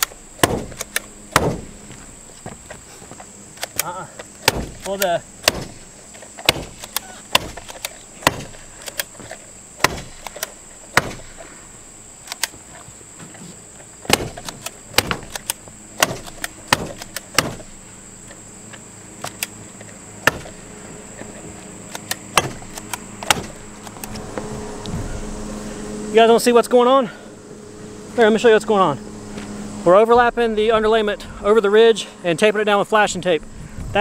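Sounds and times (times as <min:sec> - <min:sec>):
stapler knocks: 0:00.0 - 0:01.7, 0:04.4 - 0:05.8, 0:06.4 - 0:09.1, 0:09.8 - 0:11.2, 0:14.1 - 0:17.7, 0:20.2 - 0:20.5, 0:22.0 - 0:24.0.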